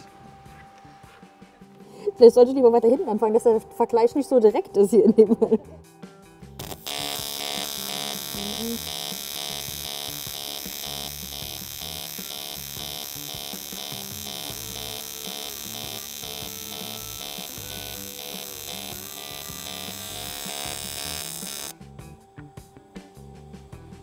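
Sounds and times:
pulsed welding arc buzzing: 0:00.0 - 0:02.8, 0:06.5 - 0:21.8.

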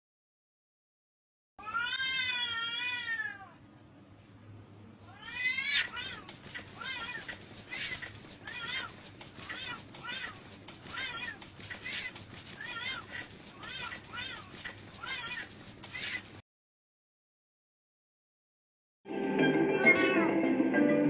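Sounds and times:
cats yowling: 0:01.6 - 0:03.6, 0:05.1 - 0:16.4.

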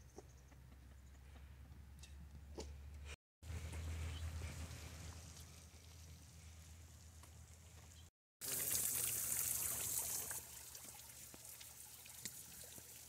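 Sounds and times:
water pouring into a tub: 0:08.4 - 0:13.0.

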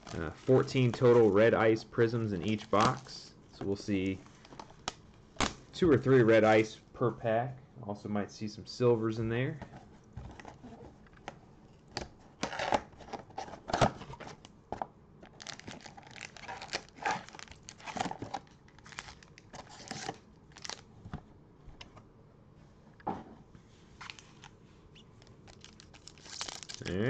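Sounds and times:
foil packs crinkling: 0:02.4 - 0:03.3, 0:15.3 - 0:20.9, 0:24.0 - 0:24.5, 0:25.2 - 0:27.0
wrapping and cardboard tearing: 0:15.3 - 0:20.8, 0:25.4 - 0:27.0.

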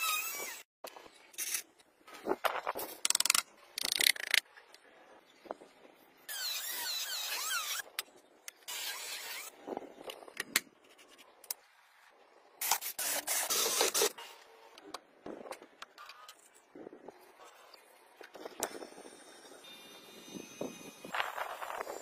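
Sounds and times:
drill bit squealing in plastic: 0:06.3 - 0:07.9.

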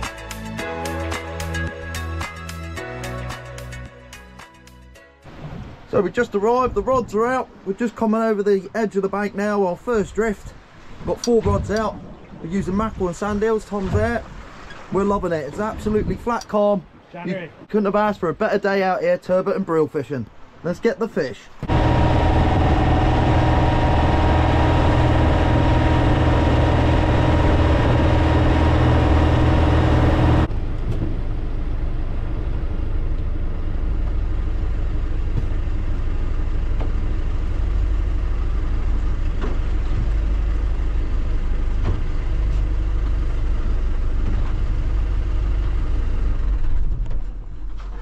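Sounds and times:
boat engine running: 0:21.6 - 0:47.8.

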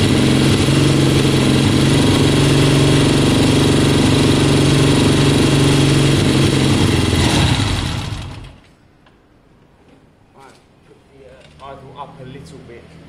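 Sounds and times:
motorcycle engine idling unevenly: 0:00.0 - 0:08.6.

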